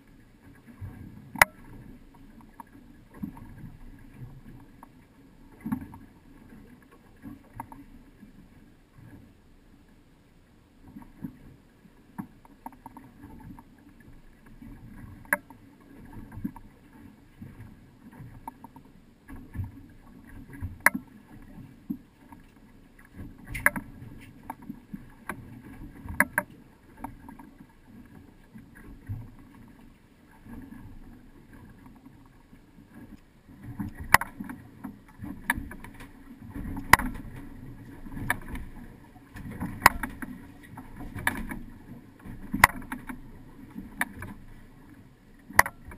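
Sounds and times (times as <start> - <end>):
boat engine rumble: 0.0 - 45.9
sharp knocks and clicks: 33.9 - 34.6, 35.4 - 37.4, 39.4 - 40.3, 42.5 - 43.2, 45.5 - 45.9.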